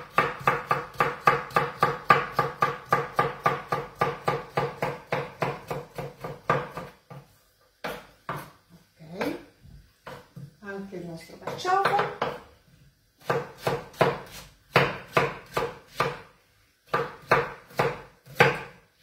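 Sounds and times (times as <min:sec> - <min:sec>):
knife chopping on wooden board: 0:00.0 - 0:08.6, 0:10.0 - 0:10.6, 0:11.4 - 0:12.5, 0:13.2 - 0:16.3, 0:16.9 - 0:18.8.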